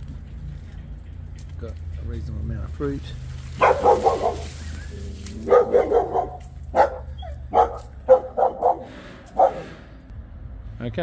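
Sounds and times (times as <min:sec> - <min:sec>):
dog barking: 0:03.6 - 0:04.6, 0:05.4 - 0:09.7.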